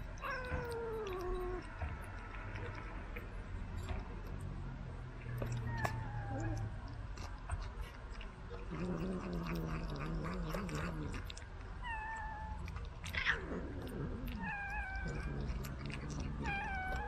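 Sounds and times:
cat growling: 0.0 - 3.2, 5.4 - 17.0
cat meowing: 0.2 - 2.0, 5.4 - 6.8, 11.8 - 13.4, 14.3 - 17.0
cat yowling: 0.2 - 2.1, 5.4 - 6.8, 11.8 - 17.0.

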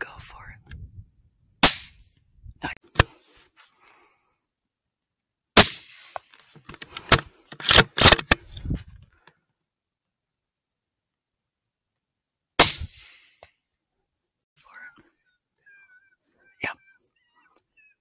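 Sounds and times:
rifle shots: 5.6 - 6.1.

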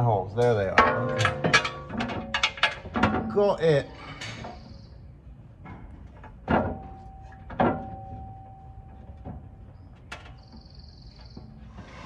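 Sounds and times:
metal clanks on skid plate: 0.4 - 3.4.

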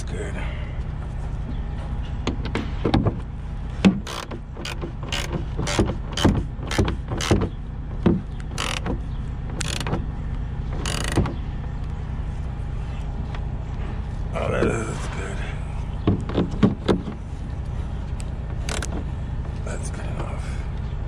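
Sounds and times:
low hum: 0.0 - 21.0
screwdriver clicks and creaks: 4.0 - 7.4, 8.4 - 9.0, 9.6 - 10.0, 10.7 - 11.3, 18.2 - 19.0.

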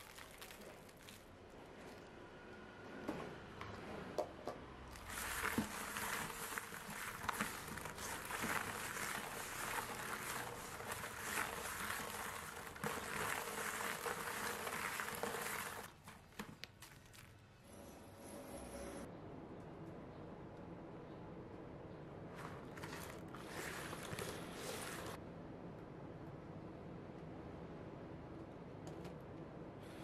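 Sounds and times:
limes scrubbed with salt in bowl: 4.9 - 17.3, 22.4 - 25.2.

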